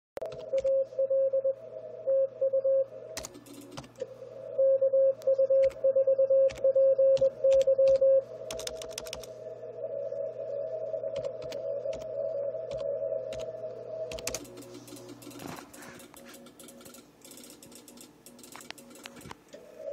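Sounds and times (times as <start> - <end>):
morse code tone: 0.2 - 2.9, 4.5 - 8.7
low hum: 0.2 - 19.9
computer keyboard clicks: 7.2 - 9.3, 11.2 - 12.1, 12.7 - 13.5, 14.1 - 15.4, 16.0 - 19.4.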